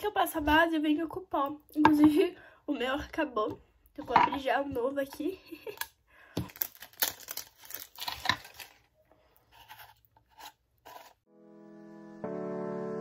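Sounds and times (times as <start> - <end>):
plastic seal and lid crackling: 4.0 - 8.9
soft piano music: 11.3 - 13.0.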